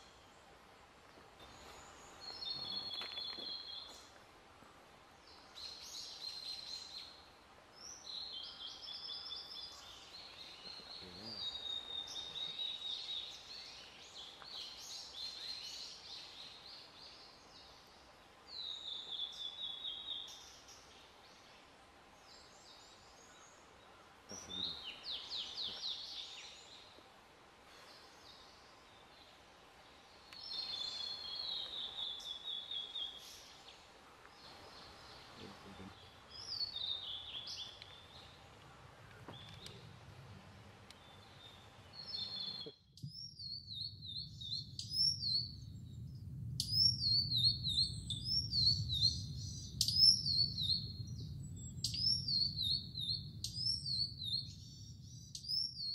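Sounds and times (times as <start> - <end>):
bird whistling song: 41.0 - 45.7, 46.6 - 55.9.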